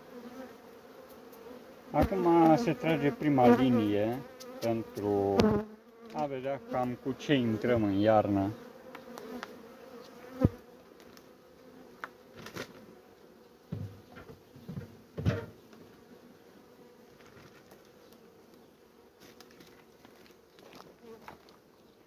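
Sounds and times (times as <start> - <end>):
bees buzzing: 0.0 - 21.4
short knocks and bumps: 13.7 - 15.6.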